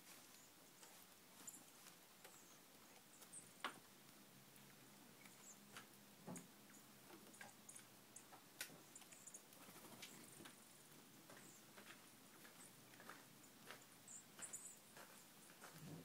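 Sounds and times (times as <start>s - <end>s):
birds pecking on gravel: 0.0s - 16.0s.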